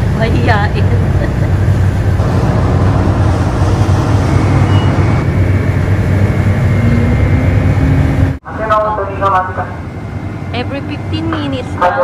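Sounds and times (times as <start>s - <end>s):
ferry engine rumble: 0.0s - 12.0s
faint high whine: 2.0s - 12.0s.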